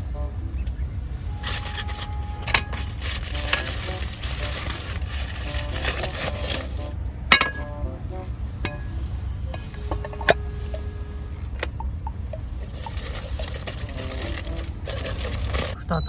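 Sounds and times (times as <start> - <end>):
steady low hum: 0.0 - 16.0
frying hiss: 1.4 - 7.5, 8.6 - 15.9
metal pot clinking: 7.3 - 7.7.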